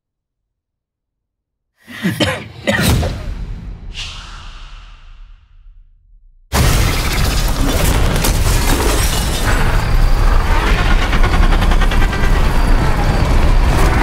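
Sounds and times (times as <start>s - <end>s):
glass shattering: 6.6s - 9.8s.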